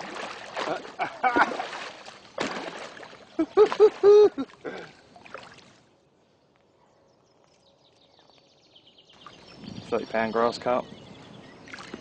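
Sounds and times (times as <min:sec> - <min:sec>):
fish splashing in water: 0:00.0 - 0:05.8.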